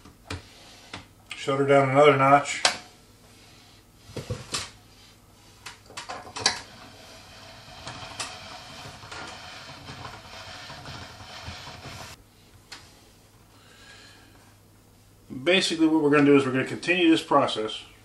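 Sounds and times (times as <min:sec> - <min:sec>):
pasta machine crank turning: 0:06.2 - 0:12.2.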